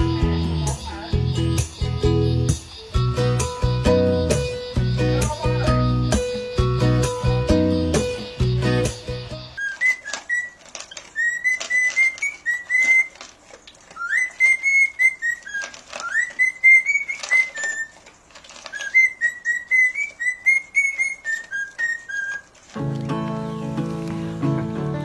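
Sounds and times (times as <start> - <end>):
cockatiel whistling a tune: 9.4 - 13.2, 14.0 - 18.0, 18.7 - 22.5
dog chewing dry kibble: 9.6 - 24.4.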